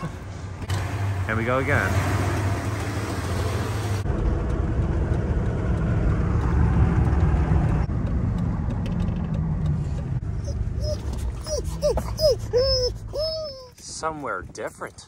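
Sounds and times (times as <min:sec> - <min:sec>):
road rumble inside vehicle: 0:00.0 - 0:15.0
pickup truck engine running: 0:00.5 - 0:10.8.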